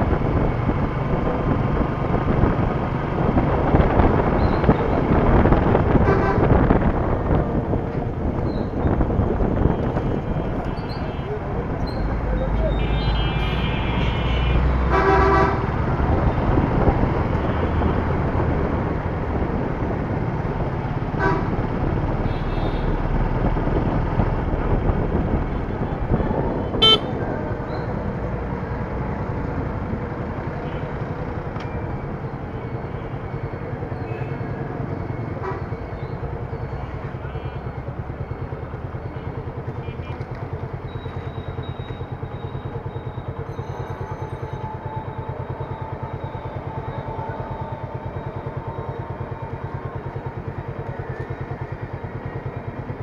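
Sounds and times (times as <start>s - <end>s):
motorcycle engine idling: 36.0s - 53.0s.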